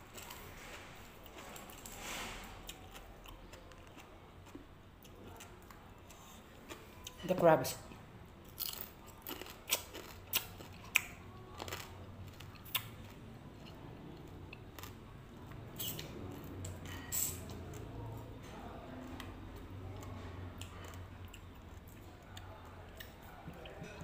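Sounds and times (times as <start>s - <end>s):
crisp chewing crunches: 8.5s - 13.8s.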